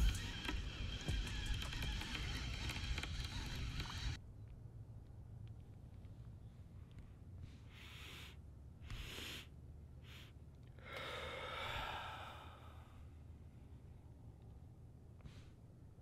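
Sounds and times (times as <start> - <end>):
man breathing out: 10.1 - 13.1.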